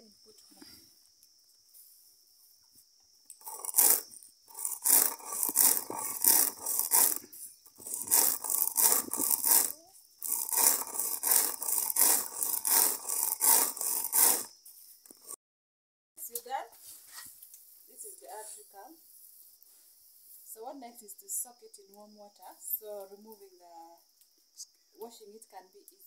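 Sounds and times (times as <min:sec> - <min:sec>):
stone scraping over dry peas: 0:03.4 - 0:14.5.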